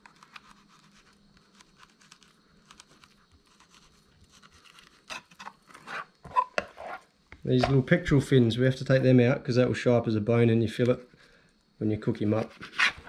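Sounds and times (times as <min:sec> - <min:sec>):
knife scratching on cutting board: 0:00.1 - 0:07.1, 0:12.4 - 0:13.0.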